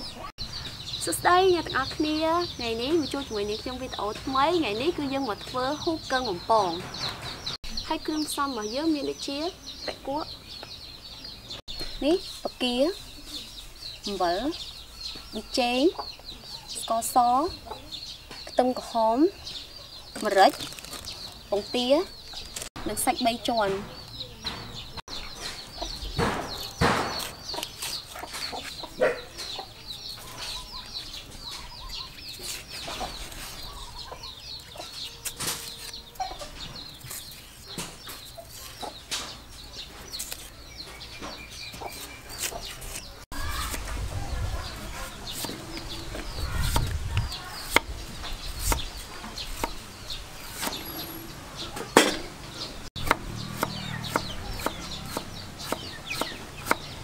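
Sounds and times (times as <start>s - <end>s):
chickens clucking: 15.1s - 18.7s, 23.3s - 57.0s.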